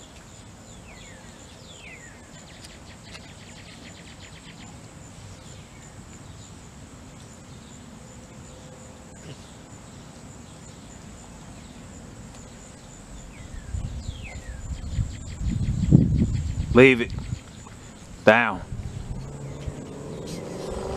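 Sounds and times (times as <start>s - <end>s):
high insect trill: 0.0s - 20.9s
descending bird chirps: 13.2s - 20.9s
low rumbling: 13.2s - 20.9s.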